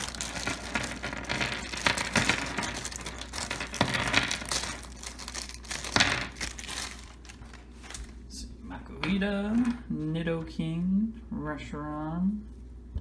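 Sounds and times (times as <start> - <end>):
plastic toys clattering on wood: 0.0 - 4.9
plastic bag crinkling: 0.0 - 8.3.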